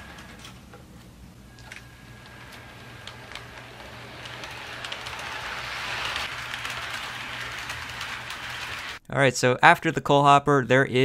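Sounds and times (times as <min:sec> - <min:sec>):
model train wheels clicking: 0:01.5 - 0:09.0.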